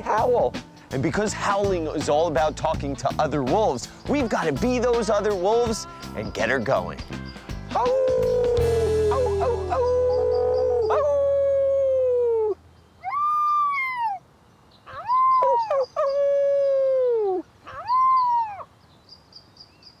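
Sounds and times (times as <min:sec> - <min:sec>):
men imitating wolf howls: 0:07.7 - 0:14.2, 0:14.9 - 0:18.6
wolf pup howling: 0:07.7 - 0:14.2, 0:14.9 - 0:18.7.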